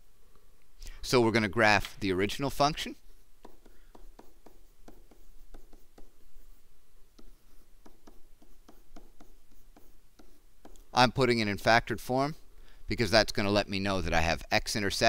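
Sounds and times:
stylus tapping on tablet screen: 3.4s - 6.5s, 7.1s - 11.0s.

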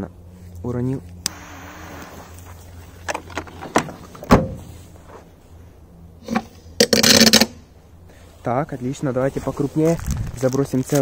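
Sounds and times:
sharp thump: 4.2s - 4.7s.

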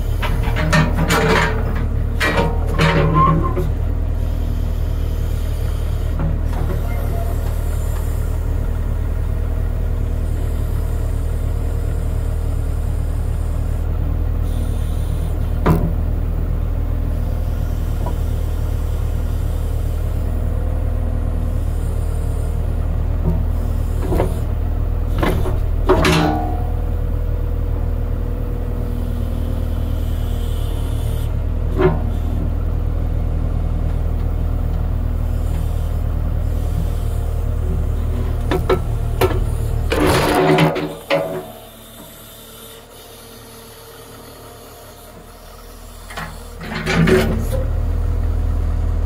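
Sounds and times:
backhoe engine running: 0.0s - 49.0s
metal clanks and knocks: 0.2s - 3.7s, 25.1s - 26.9s, 38.3s - 41.6s, 46.1s - 47.6s.

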